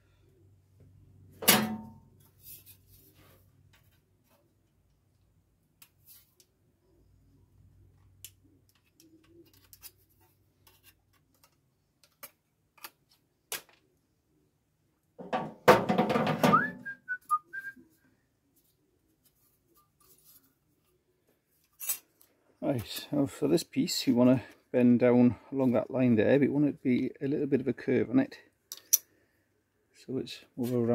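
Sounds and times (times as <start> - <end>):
person whistling: 16.5 - 17.8.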